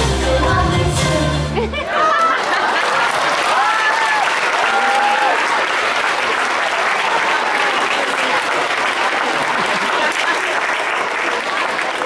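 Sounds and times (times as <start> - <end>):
audience applauding: 1.8 - 12.0.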